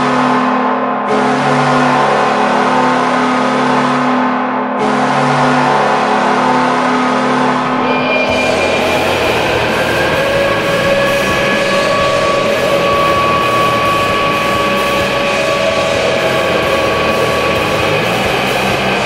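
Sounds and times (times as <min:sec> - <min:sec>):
goal horn blast: 0:01.1 - 0:19.0
loud goal song music: 0:07.8 - 0:19.0.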